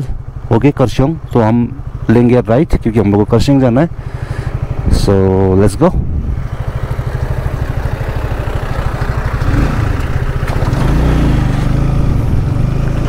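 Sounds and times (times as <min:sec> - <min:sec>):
utility vehicle engine passing: 0:06.2 - 0:13.0
motorcycle engine pulling away: 0:06.3 - 0:13.0.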